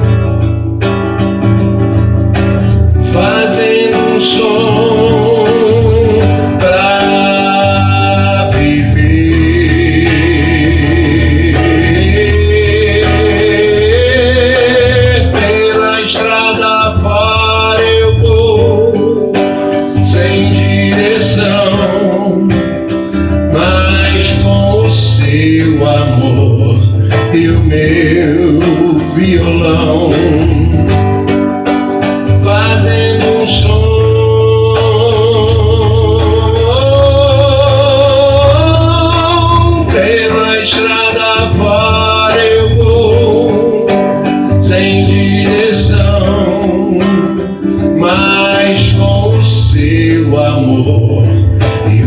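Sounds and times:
acoustic guitar strumming: 0:00.0 - 0:52.0
man singing with vibrato: 0:00.0 - 0:52.0.

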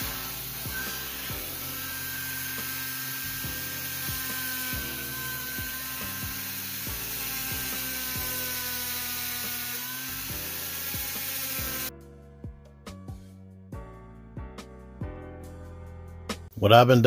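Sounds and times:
rotary tool drilling plastic: 0:00.0 - 0:11.9.

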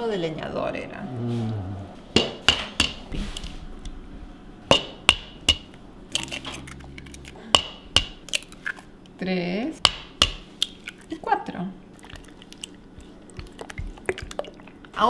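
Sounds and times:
eggs cracking on a bowl rim: 0:04.7 - 0:09.2, 0:09.9 - 0:11.2, 0:12.0 - 0:14.8.

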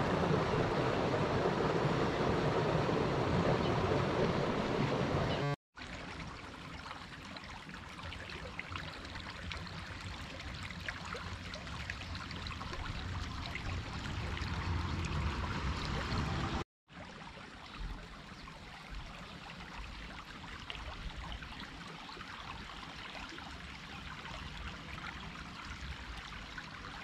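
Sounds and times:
water running in ditch: 0:00.0 - 0:27.0.

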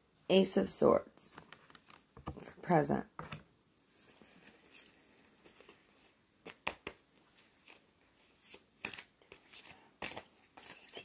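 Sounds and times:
cards shuffled and flicked: 0:01.3 - 0:02.4, 0:06.4 - 0:07.8, 0:08.4 - 0:11.0.

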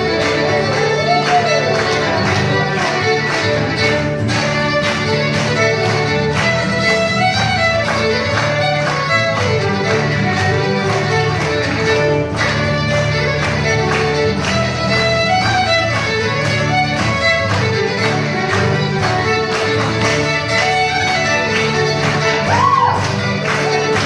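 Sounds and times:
fiddles playing a tune: 0:00.0 - 0:24.0
strummed acoustic guitars: 0:00.0 - 0:24.0.

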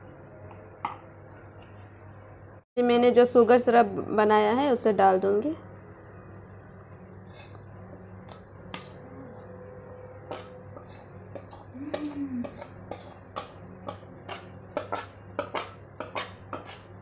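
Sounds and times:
steady low hum: 0:00.0 - 0:17.0
metal spoon clinking on steel bowl: 0:10.1 - 0:16.9.

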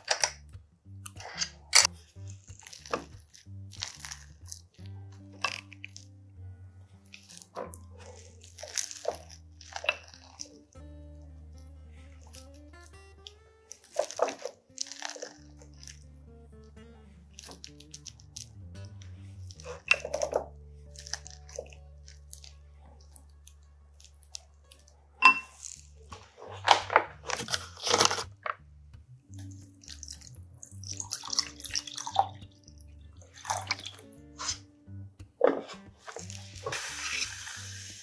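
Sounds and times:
background music with bass: 0:00.0 - 0:38.0
plastic bottle handled: 0:01.0 - 0:04.6, 0:13.7 - 0:16.0, 0:25.2 - 0:28.6, 0:35.2 - 0:37.4
sharp clink: 0:25.2 - 0:25.6
paddle scraping and tapping pot: 0:33.2 - 0:37.3.

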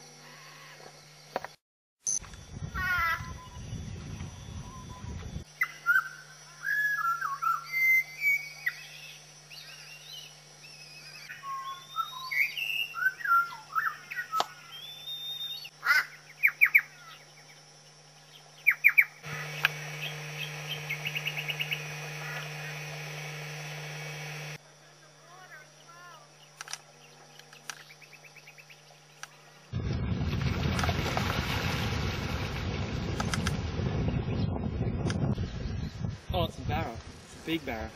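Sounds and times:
birds chirping and whistling: 0:02.8 - 0:17.6, 0:18.2 - 0:24.5
bird trilling fast: 0:18.7 - 0:24.6.

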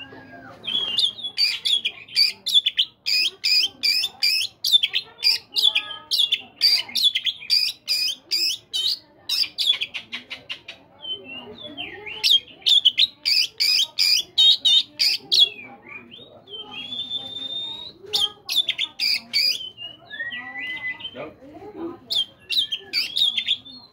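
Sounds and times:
songbird singing: 0:00.0 - 0:21.4, 0:22.0 - 0:23.9.

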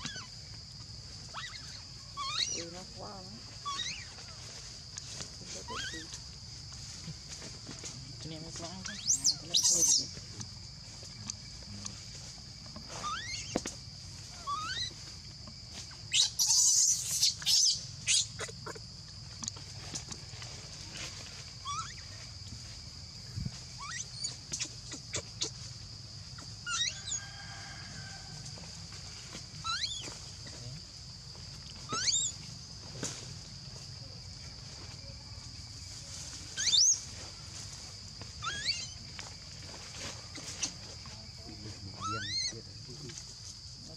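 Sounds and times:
baby monkey screeching: 0:00.0 - 0:00.3, 0:01.3 - 0:02.8, 0:03.6 - 0:04.4, 0:05.6 - 0:06.2, 0:08.8 - 0:10.2, 0:12.9 - 0:13.7, 0:14.3 - 0:15.1, 0:16.1 - 0:18.8, 0:21.6 - 0:22.2, 0:23.8 - 0:25.6, 0:26.4 - 0:27.2, 0:29.6 - 0:30.2, 0:31.8 - 0:32.4, 0:36.5 - 0:37.1, 0:38.4 - 0:39.0, 0:42.0 - 0:42.6
baby monkey squeaking: 0:00.0 - 0:00.3, 0:01.3 - 0:02.8, 0:03.5 - 0:04.2, 0:05.6 - 0:06.2, 0:08.8 - 0:10.2, 0:12.9 - 0:13.7, 0:14.3 - 0:15.1, 0:16.1 - 0:18.8, 0:21.6 - 0:22.2, 0:23.8 - 0:25.6, 0:26.4 - 0:27.2, 0:29.6 - 0:30.2, 0:31.8 - 0:32.4, 0:36.5 - 0:37.1, 0:38.4 - 0:39.0, 0:42.0 - 0:42.6
high insect drone: 0:00.0 - 0:43.9.

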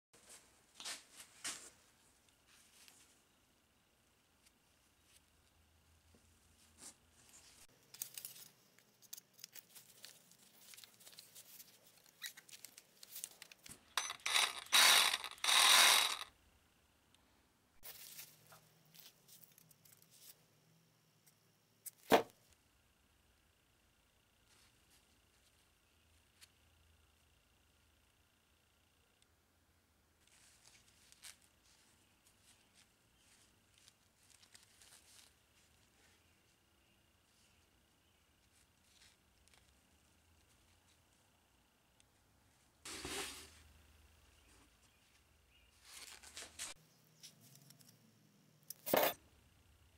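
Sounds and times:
gloved hands rustling: 0:06.2 - 0:16.3, 0:30.2 - 0:36.6
reciprocating saw running: 0:14.0 - 0:16.3.

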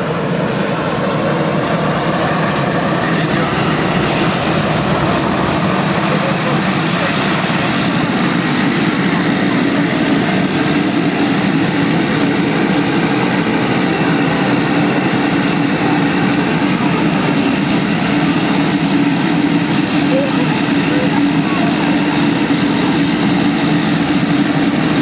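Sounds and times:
turboprop engine droning: 0:00.0 - 0:25.0.

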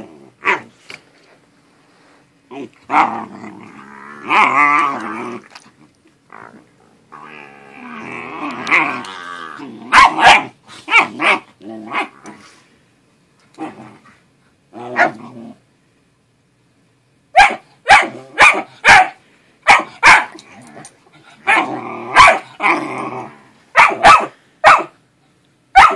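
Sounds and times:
dog growling: 0:00.0 - 0:00.7, 0:02.5 - 0:12.4, 0:13.6 - 0:15.6, 0:20.4 - 0:23.6
dog barking: 0:09.9 - 0:11.4, 0:17.4 - 0:20.4, 0:21.5 - 0:22.5, 0:23.7 - 0:25.0.

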